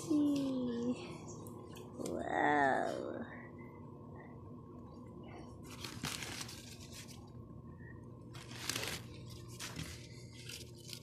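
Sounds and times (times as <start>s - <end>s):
paper and cardboard rustling: 5.6s - 7.3s, 8.3s - 11.0s.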